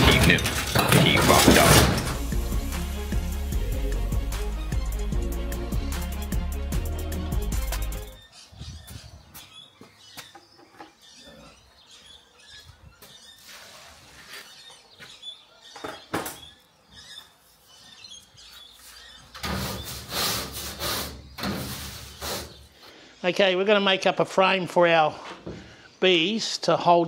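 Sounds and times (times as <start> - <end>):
broom sweeping metal deck: 0.0 - 6.3, 13.2 - 14.7, 17.4 - 22.9.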